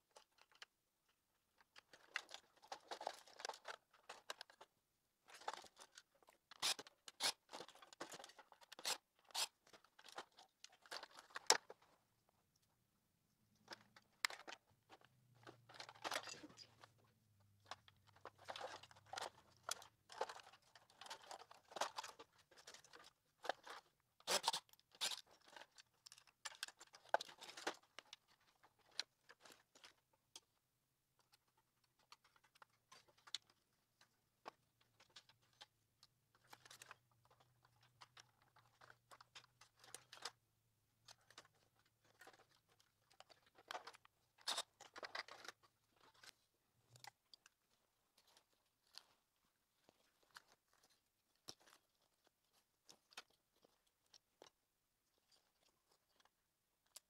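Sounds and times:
plastic parts clicking and snapping: 1.6s - 4.7s, 13.6s - 16.9s, 17.6s - 30.5s, 31.2s - 40.4s, 41.0s - 49.2s.

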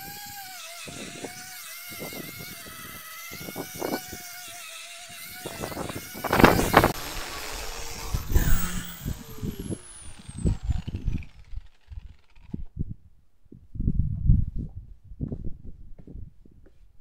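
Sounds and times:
angle grinder sanding wood: 0.0s - 12.6s
grinder winding down: 0.0s - 12.7s.

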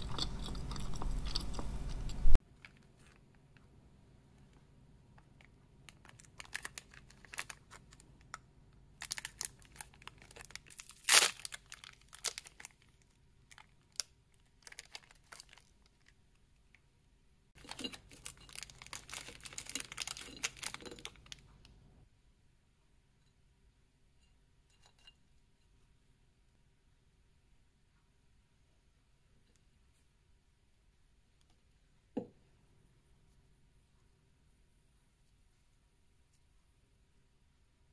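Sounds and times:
plastic wrapper crinkling: 5.9s - 8.0s, 9.0s - 16.2s, 17.6s - 21.4s
wrapper tearing: 6.0s - 7.9s, 9.0s - 12.8s, 14.6s - 16.1s, 17.6s - 21.4s.

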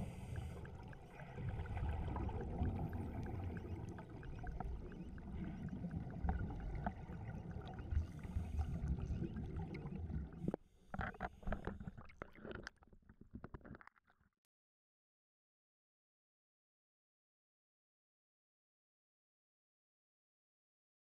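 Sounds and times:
underwater regulator bubbles: 0.0s - 14.0s.

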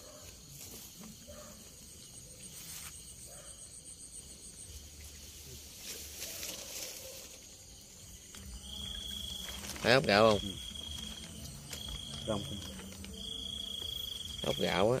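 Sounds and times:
rustles: 0.0s - 3.2s, 4.4s - 14.8s
night insects chirring: 0.0s - 15.0s.

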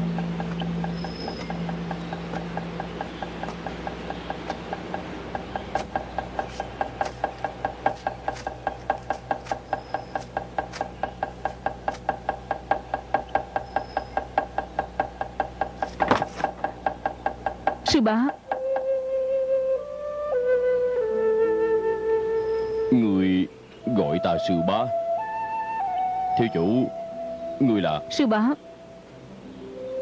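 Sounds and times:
wooden fish tapping: 0.0s - 18.9s
background music: 17.8s - 30.0s.

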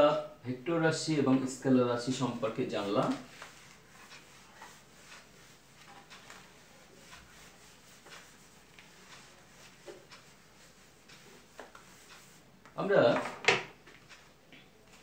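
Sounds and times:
eraser rubbing on whiteboard: 2.1s - 12.4s.

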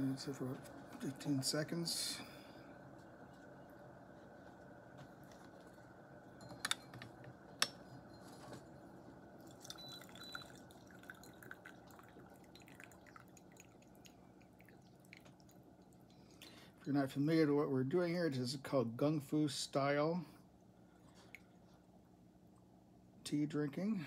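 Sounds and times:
low room hum: 0.0s - 24.0s
teaware clinking: 6.4s - 8.4s, 9.5s - 11.8s
liquid dripping: 9.4s - 16.7s.

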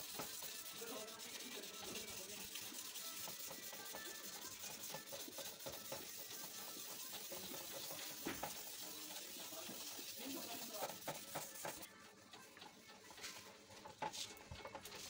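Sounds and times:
wet sandpaper rubbing plastic: 0.0s - 11.9s.

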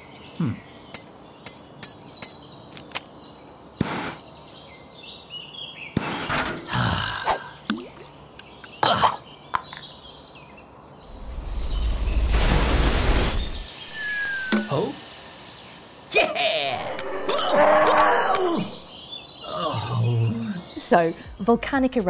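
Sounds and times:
faint birdsong: 0.0s - 12.4s, 13.2s - 22.0s
cartoon rushing sounds: 16.1s - 18.8s.

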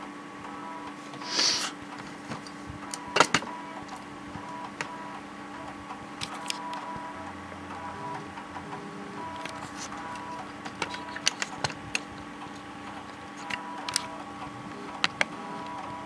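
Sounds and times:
floppy drive motor hum: 0.0s - 16.0s
sharp clicks: 8.4s - 16.0s.

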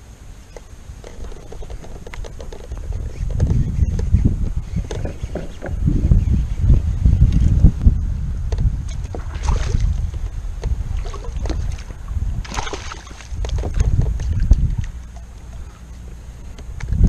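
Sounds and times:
wind buffeting microphone: 0.0s - 17.0s
fish thrashing and splashing: 8.9s - 15.8s.

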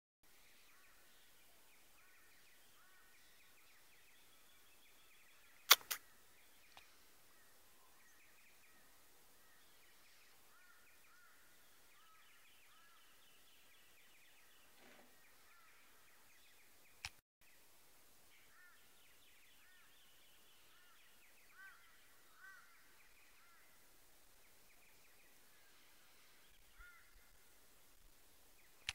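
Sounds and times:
faint bird chirps: 0.3s - 17.7s, 18.3s - 28.9s
sharp clicks: 5.7s - 6.0s.

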